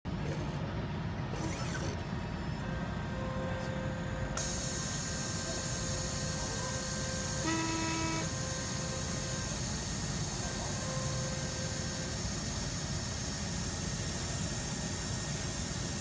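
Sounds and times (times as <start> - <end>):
hot air blower rushing: 4.4 - 16.0.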